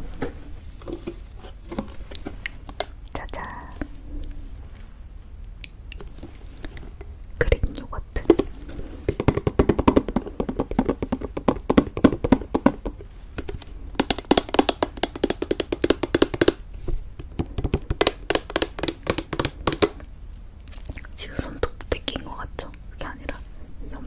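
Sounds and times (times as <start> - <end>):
fingernails tapping plastic tub: 9.1 - 16.6, 17.2 - 20.0.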